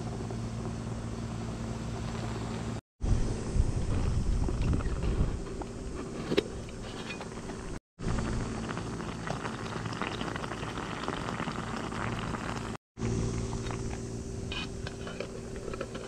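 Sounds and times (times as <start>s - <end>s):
rice bubbling in a pot: 8.0s - 16.0s.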